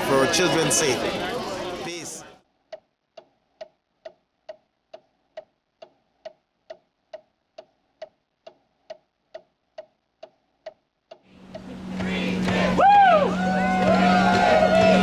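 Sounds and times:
clock ticking: 0:02.7 - 0:12.6.

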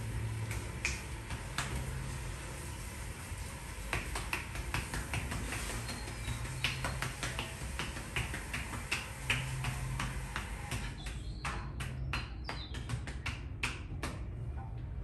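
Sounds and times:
steady low hum: 0:00.0 - 0:15.0
hands striking a back: 0:03.9 - 0:14.2.

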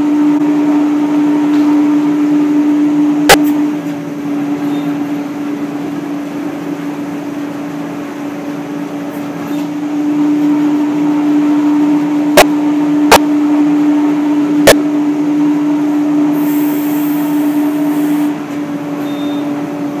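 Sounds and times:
machine humming: 0:09.8 - 0:18.9.

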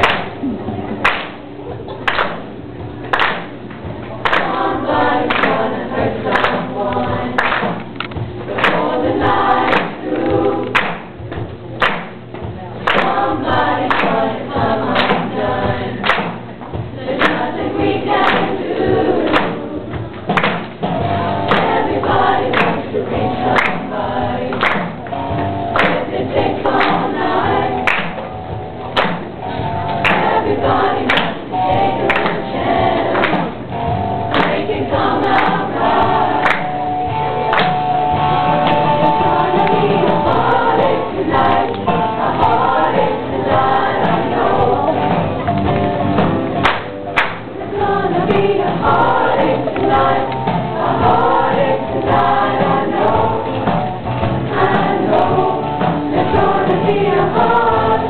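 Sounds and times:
choir singing in unison: 0:04.2 - 0:07.8, 0:08.5 - 0:11.0, 0:12.8 - 0:16.3, 0:17.0 - 0:20.0, 0:21.0 - 0:24.9, 0:25.7 - 0:28.2, 0:30.0 - 0:33.7, 0:34.3 - 0:45.4, 0:47.5 - 0:58.0.

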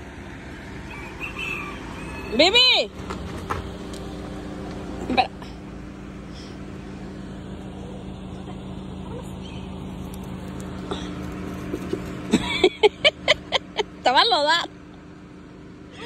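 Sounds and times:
low motor hum: 0:00.0 - 0:16.0.

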